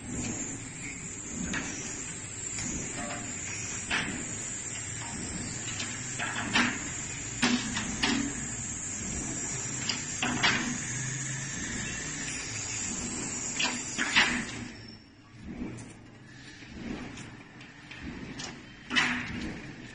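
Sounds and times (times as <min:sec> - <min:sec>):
steady hiss: 0:00.2 - 0:14.6.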